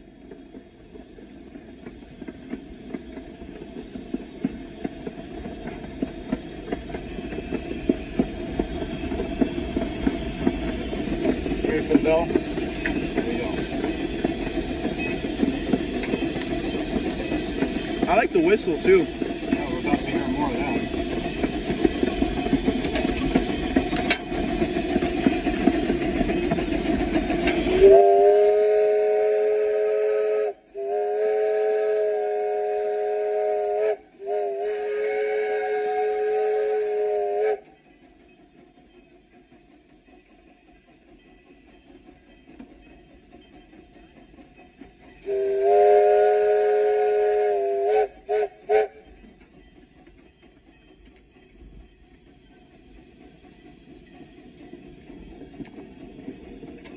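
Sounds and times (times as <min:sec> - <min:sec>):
steam locomotive rumble and hiss: 0:00.0 - 0:56.9
steam whistle chord: 0:27.7 - 0:37.7, 0:45.2 - 0:49.1.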